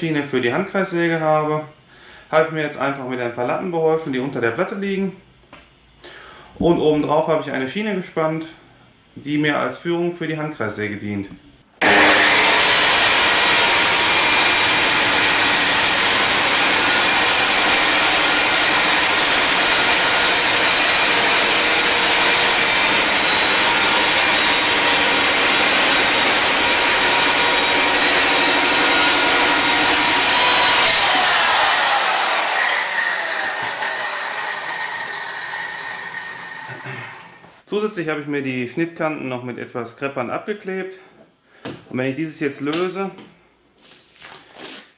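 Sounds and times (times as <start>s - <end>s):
circular saw cutting panel: 11.8s - 37.6s.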